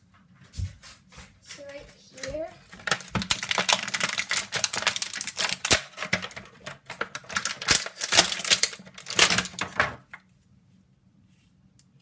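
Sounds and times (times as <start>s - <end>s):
plastic bag crinkling: 2.6s - 10.2s.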